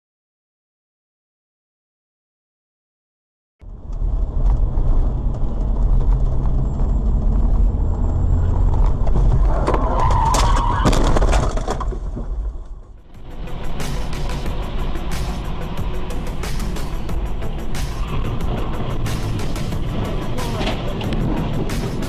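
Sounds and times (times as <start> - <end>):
road and engine rumble: 3.6 - 22.0
loud screech: 9.6 - 11.2.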